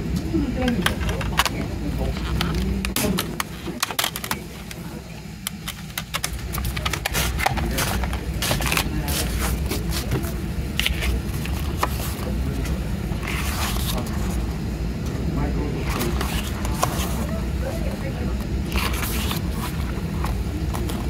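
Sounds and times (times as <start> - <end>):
pages flipping: 5.5 - 14.4, 15.8 - 17.3, 18.6 - 21.0.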